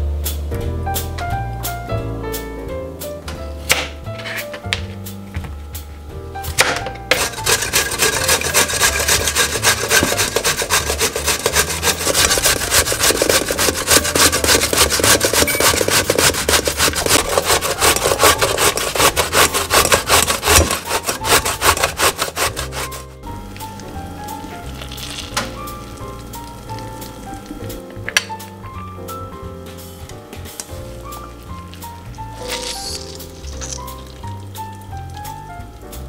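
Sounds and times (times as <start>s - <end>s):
vegetable grating on metal grater: 4.2s - 4.5s, 7.1s - 23.3s, 24.0s - 27.5s, 32.1s - 34.3s.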